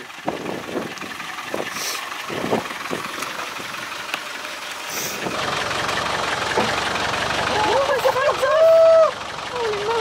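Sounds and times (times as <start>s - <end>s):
engine running at low revs: 0.0s - 10.0s
stones knocking under tyres: 2.9s - 4.4s.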